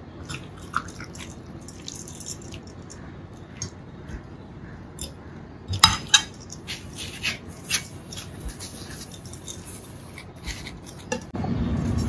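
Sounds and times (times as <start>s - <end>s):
spoon tapping and scraping: 5.8s - 11.3s.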